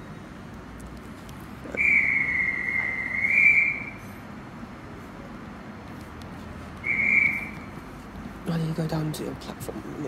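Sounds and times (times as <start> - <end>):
railway dispatch whistle blast: 1.8 - 4.0, 6.8 - 7.5.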